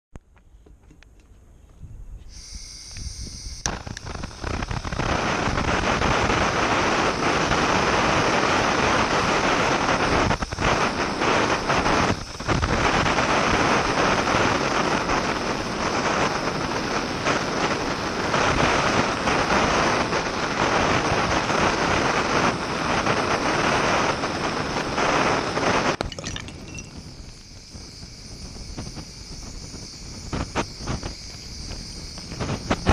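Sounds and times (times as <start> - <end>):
gas torch hissing: 2.2 - 32.9
torch flame blasting: 2.3 - 32.9
glass bottle cracking and popping: 26.0 - 27.4.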